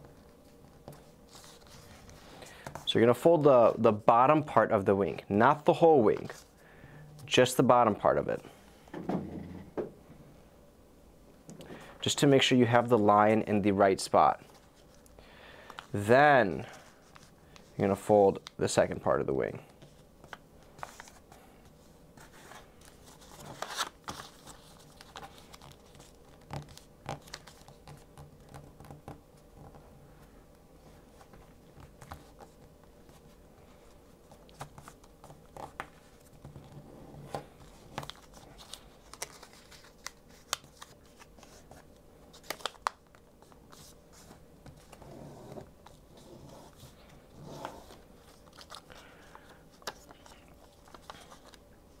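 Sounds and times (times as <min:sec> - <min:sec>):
paper rustling and crinkling: 0:00.1 - 0:03.8, 0:16.6 - 0:18.5, 0:19.7 - 0:29.0, 0:30.9 - 0:52.0.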